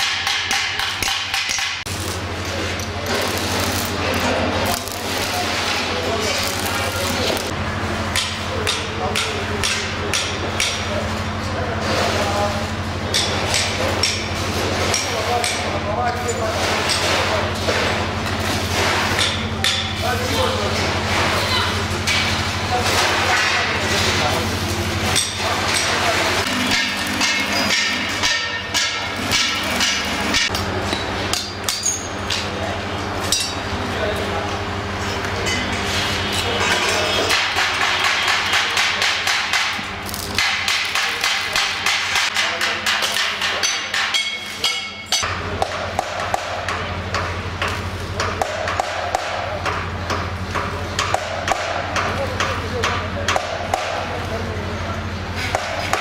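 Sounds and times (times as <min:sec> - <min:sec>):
arc welding buzzing and crackling: 0:00.0 - 0:48.4
hammer blows ringing on steel: 0:25.2 - 0:30.6, 0:35.5 - 0:46.8.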